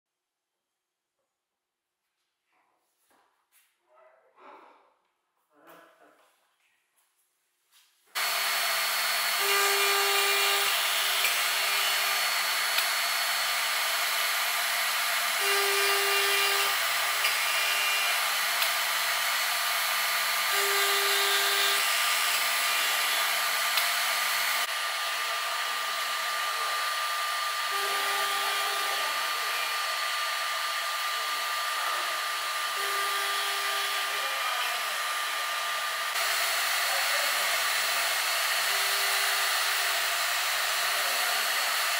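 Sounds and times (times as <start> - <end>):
router spindle high whine: 8.2 - 41.9.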